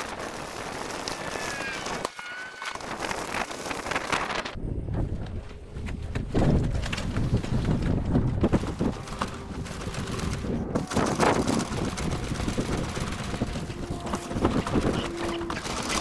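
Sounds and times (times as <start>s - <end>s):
wind buffeting microphone: 2.8s - 16.0s
footsteps in long grass: 5.4s - 15.4s.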